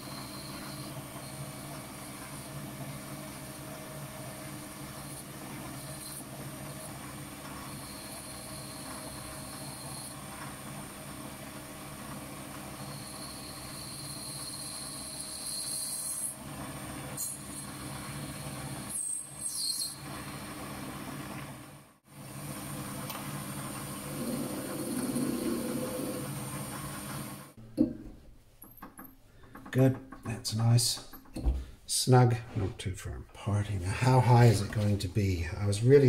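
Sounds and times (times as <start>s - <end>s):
lathe motor humming and whining: 0.0s - 21.3s, 22.2s - 27.6s.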